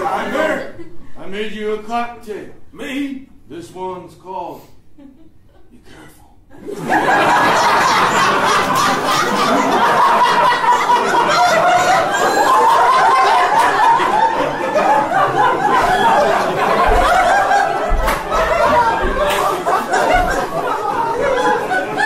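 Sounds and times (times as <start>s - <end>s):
audience laughing: 6.5s - 22.0s.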